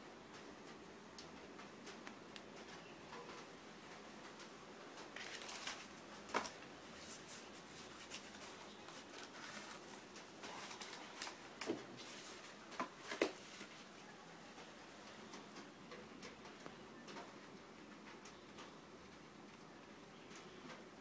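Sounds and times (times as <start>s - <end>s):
disc sleeves rustling: 4.2s - 13.9s.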